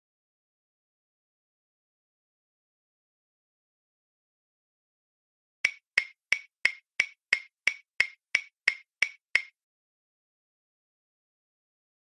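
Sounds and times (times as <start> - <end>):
clock ticking: 5.7 - 9.5.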